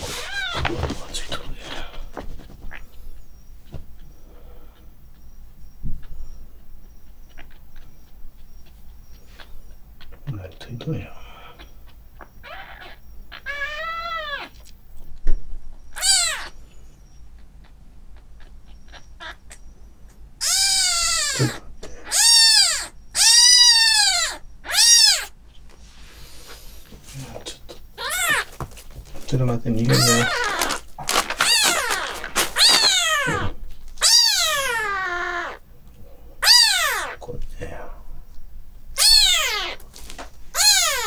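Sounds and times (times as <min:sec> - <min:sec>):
kitten mewing: 0:00.0 - 0:02.0, 0:11.2 - 0:14.8, 0:16.0 - 0:16.6, 0:20.4 - 0:25.4, 0:27.5 - 0:28.5, 0:29.8 - 0:35.6, 0:36.4 - 0:37.4, 0:39.0 - 0:39.9, 0:40.5 - 0:41.0.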